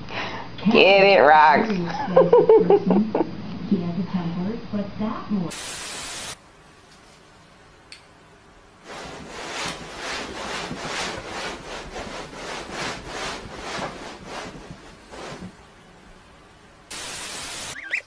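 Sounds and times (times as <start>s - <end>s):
cat fur scratching rug: 8.8s - 15.6s.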